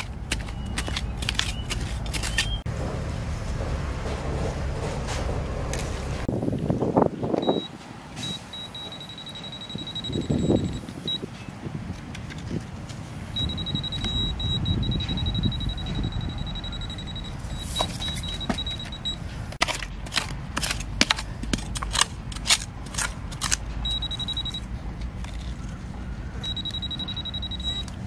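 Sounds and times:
hand tool digging in soil: 0.0 - 2.7, 19.6 - 24.4
metal detector alert tone: 7.4 - 11.2, 13.4 - 19.3, 23.8 - 24.6, 26.4 - 28.0.

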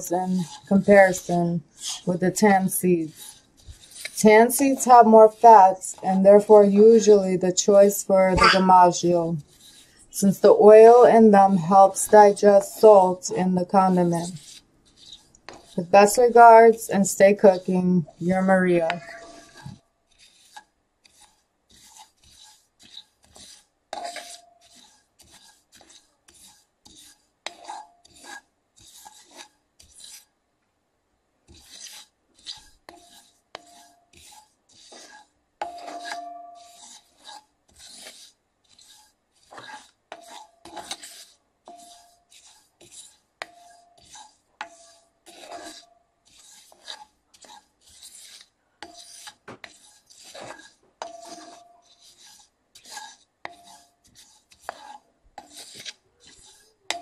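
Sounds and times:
spatula scraping skillet: 0.0 - 30.4, 31.4 - 57.0
seeds sliding over iron: 0.4 - 5.6.

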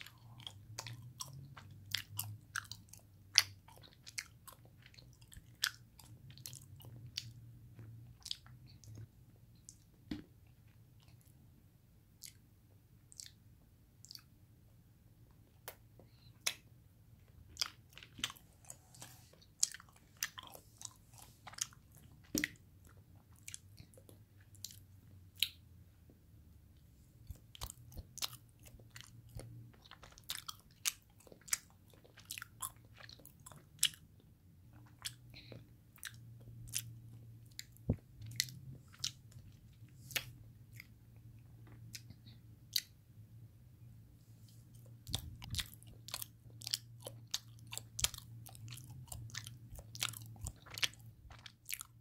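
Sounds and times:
wet chewing mouth clicks: 0.0 - 10.0, 12.2 - 14.3, 17.5 - 25.6, 27.2 - 34.1, 34.7 - 41.0, 41.6 - 43.0, 44.7 - 52.0
faint low hum: 0.0 - 52.0.

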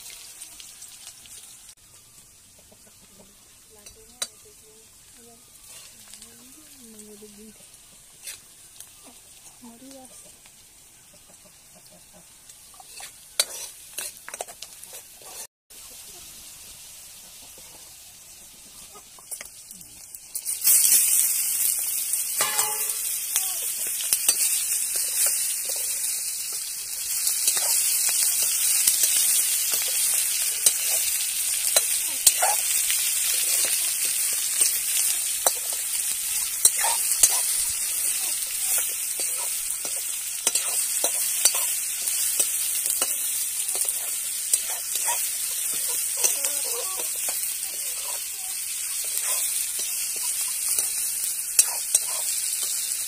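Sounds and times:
meat sizzling in hot oil: 0.0 - 53.0
ladle scraping a pan: 12.8 - 15.5.

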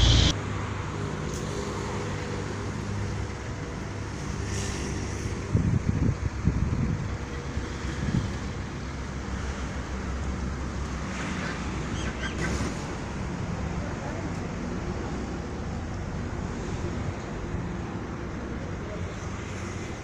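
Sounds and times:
faint high wavering sound: 0.0 - 0.3
wind buffeting microphone: 5.4 - 8.7.

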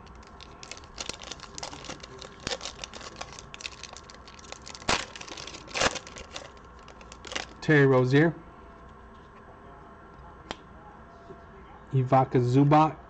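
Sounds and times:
plastic wrapper crinkling and tearing: 0.0 - 7.6.

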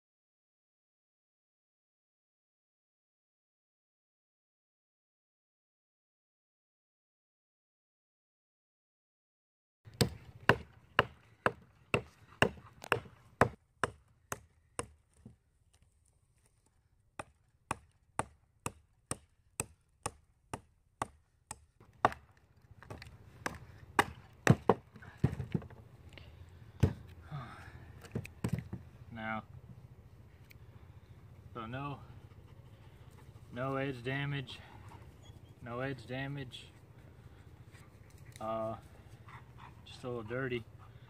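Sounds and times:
knife chopping wood: 9.9 - 15.8, 17.2 - 25.8, 26.8 - 27.1, 28.0 - 28.9.

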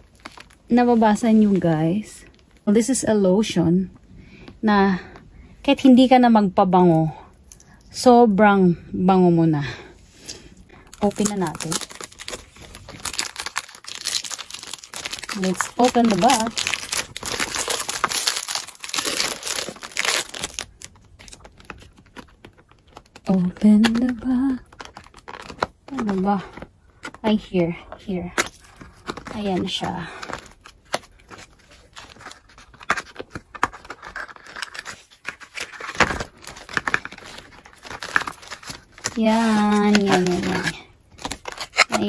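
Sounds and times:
paper crinkling and rustling: 0.0 - 2.0, 10.8 - 27.4, 28.6 - 42.0.

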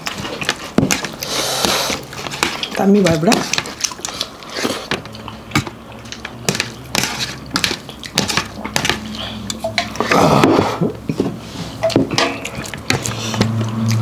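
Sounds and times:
chewing and crunching: 0.0 - 14.0
dishes and utensils clinking: 4.9 - 13.7.

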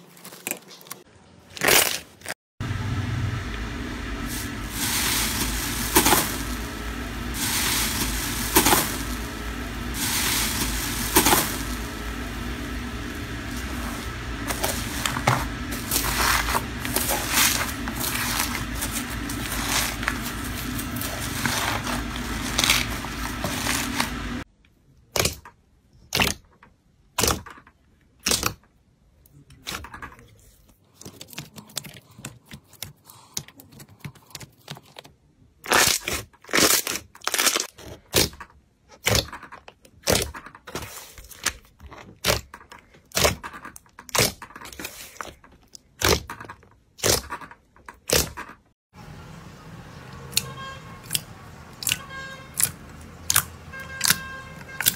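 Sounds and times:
crackling rustle of beaded slime: 4.2 - 24.4.

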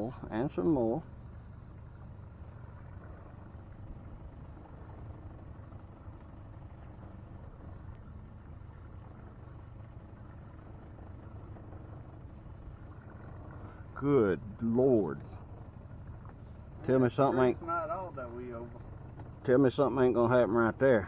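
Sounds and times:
outboard motor idling: 0.0 - 21.0.

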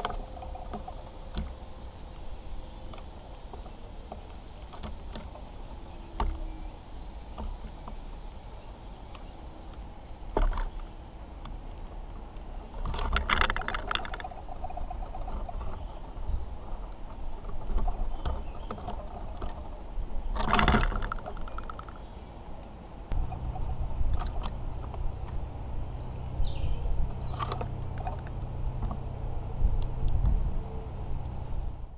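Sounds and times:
birds chirping: 0.0 - 31.9
low steady hum: 0.0 - 31.9
squirrel scratching and knocking on wood: 12.7 - 22.1.

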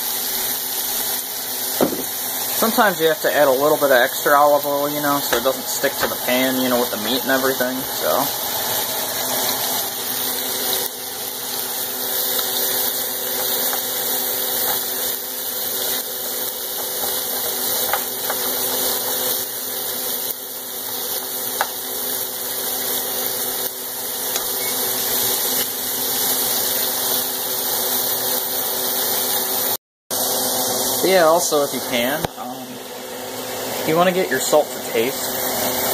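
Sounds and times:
meat sizzling in a frying pan: 0.0 - 35.9
steady hum: 1.8 - 15.4.

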